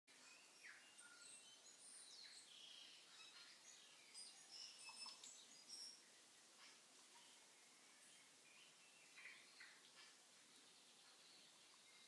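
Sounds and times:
soft background hiss: 0:00.1 - 0:12.0
birds chirping and whistling: 0:00.2 - 0:06.1.

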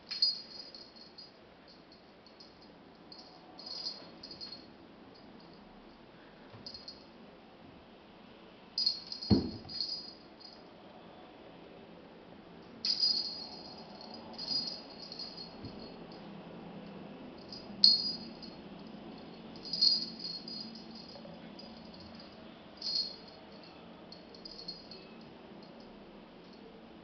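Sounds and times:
small jingle bell jingling: 0:00.0 - 0:04.7, 0:08.8 - 0:10.6, 0:12.8 - 0:16.2, 0:17.4 - 0:18.6, 0:19.2 - 0:25.2.

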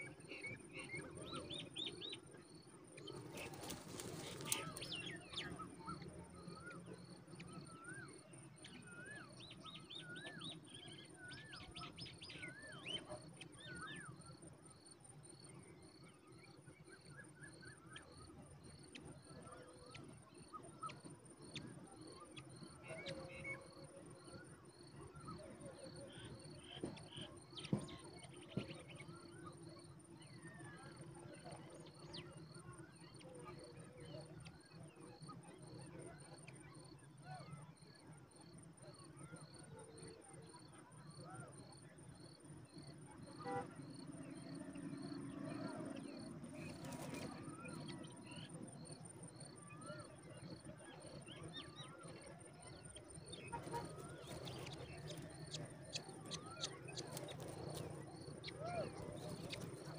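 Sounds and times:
bird calls and chirps: 0:00.0 - 0:59.9
insects trilling: 0:00.4 - 0:05.9.

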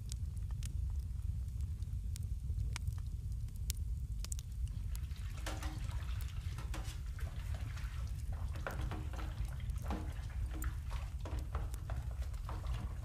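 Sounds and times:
water dripping: 0:02.1 - 0:13.0
dishwater sloshing and splashing: 0:05.0 - 0:13.0.

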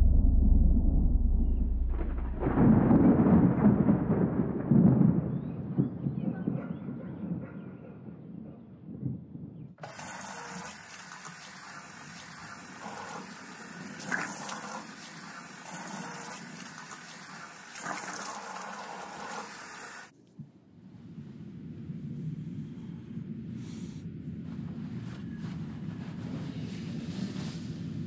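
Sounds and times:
tap water running into basin: 0:09.8 - 0:20.1.

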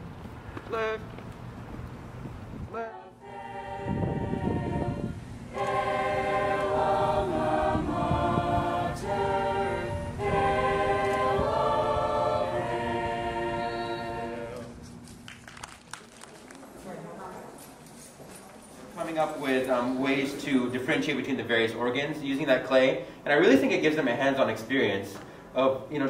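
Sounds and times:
choir singing held chords: 0:02.7 - 0:14.8
choir breaths: 0:02.8 - 0:14.8.

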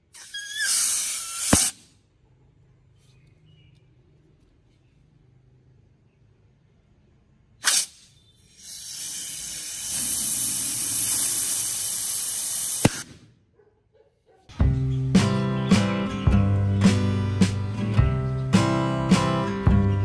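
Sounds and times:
air spray gun hissing: 0:07.6 - 0:13.0.

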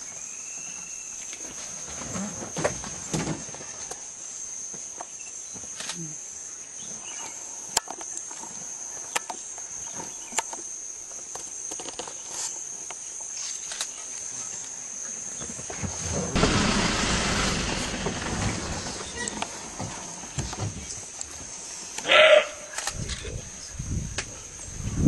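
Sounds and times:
insects droning: 0:00.0 - 0:25.0
loud rushing noise: 0:16.3 - 0:19.3.

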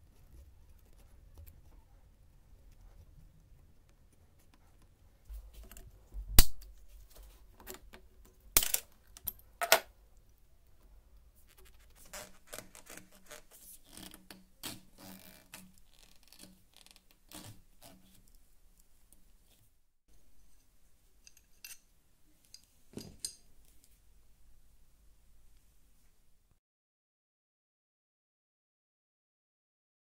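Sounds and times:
small metal parts clinking: 0:08.6 - 0:09.9, 0:20.4 - 0:21.9.

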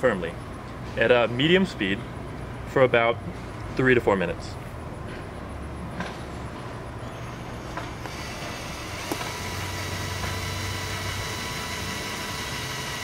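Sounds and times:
cordless drill motor whine: 0:07.0 - 0:13.0.

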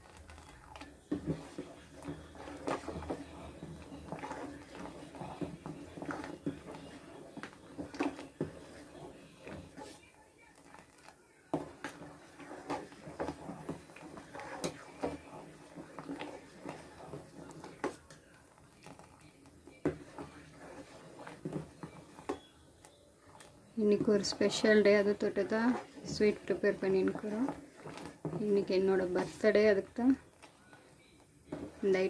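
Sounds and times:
metal spoon scraping pot: 0:00.0 - 0:10.0, 0:10.6 - 0:18.0, 0:19.8 - 0:22.4, 0:23.2 - 0:30.4.

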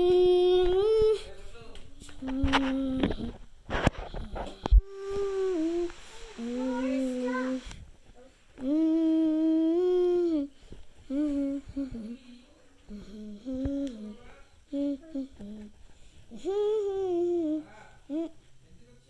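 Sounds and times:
person humming: 0:04.4 - 0:07.2, 0:08.6 - 0:10.5.

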